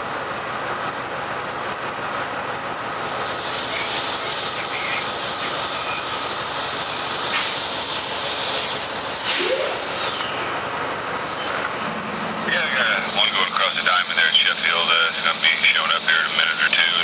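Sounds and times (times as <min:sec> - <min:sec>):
diesel locomotive and wheels on rails: 0:00.0 - 0:17.0.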